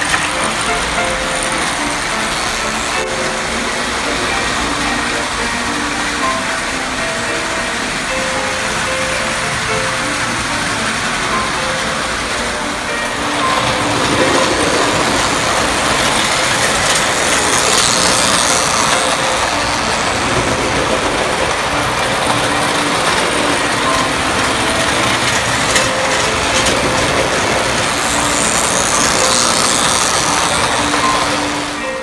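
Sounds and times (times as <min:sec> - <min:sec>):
locomotive motors growling: 0:00.0 - 0:32.0
toy train cars rattling on rails: 0:00.0 - 0:32.0.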